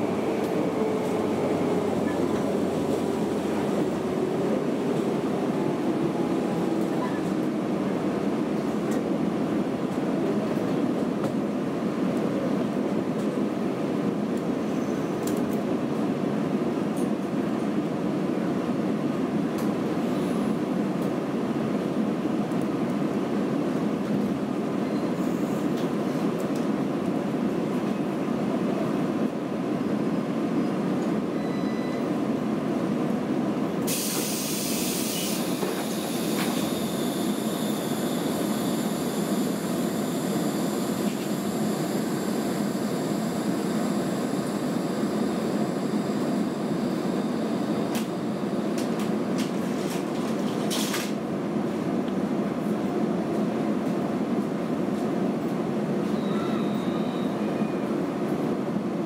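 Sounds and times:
train wheels rumbling: 0:00.0 - 0:11.4
loud hiss: 0:33.9 - 0:43.9.

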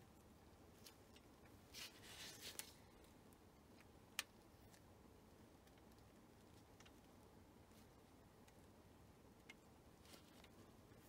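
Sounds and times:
gloves rustling: 0:00.6 - 0:05.0.

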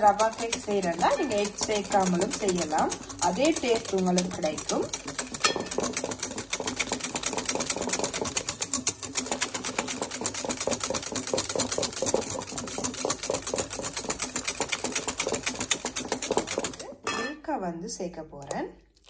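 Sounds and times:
whisk clicking against glass bowl: 0:00.0 - 0:16.8.

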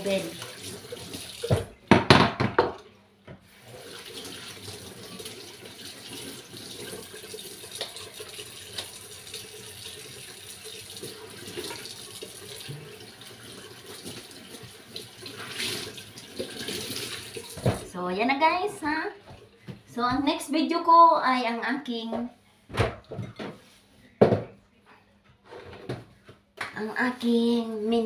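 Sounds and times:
tap water splashing into sink: 0:00.2 - 0:02.8, 0:03.9 - 0:17.9.

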